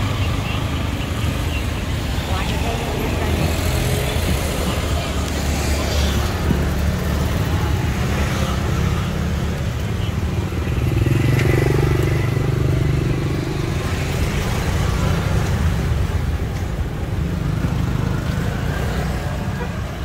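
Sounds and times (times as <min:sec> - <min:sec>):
vehicle engines running: 0:00.0 - 0:20.0.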